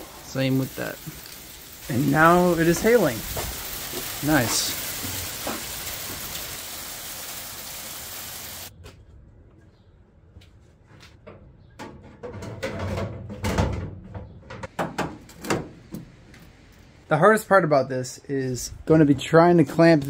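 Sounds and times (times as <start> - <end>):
hail hissing: 0.0 - 8.7
sheet metal knocks and clanks: 11.3 - 15.7.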